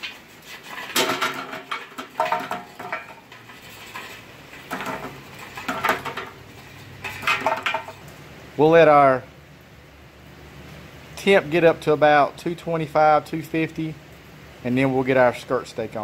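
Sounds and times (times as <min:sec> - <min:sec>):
charcoal clinking and clattering: 0:00.0 - 0:08.2.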